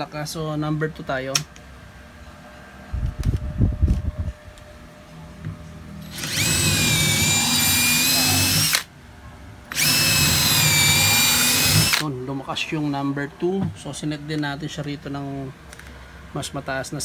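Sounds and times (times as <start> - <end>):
drill whining into wood: 6.0 - 8.9, 9.7 - 12.0.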